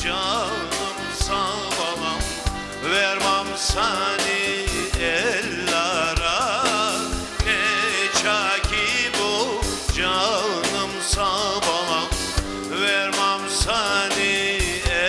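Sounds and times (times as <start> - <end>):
drum striking: 0.0 - 15.0
live band playing: 0.0 - 15.0
man singing folk song: 0.0 - 15.0.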